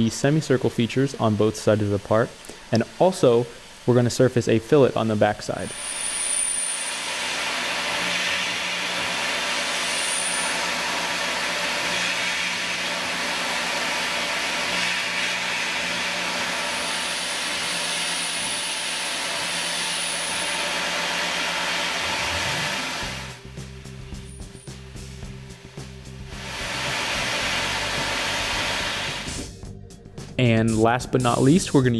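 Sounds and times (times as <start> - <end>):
milling machine cutting hiss: 0.0 - 29.6
thin high whine: 0.0 - 29.6
background music: 22.3 - 31.9.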